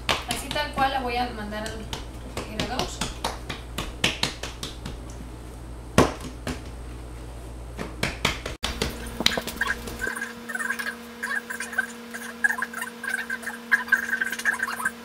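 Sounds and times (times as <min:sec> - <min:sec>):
hands patting dough: 0:00.0 - 0:05.3, 0:06.0 - 0:06.9, 0:07.8 - 0:10.2.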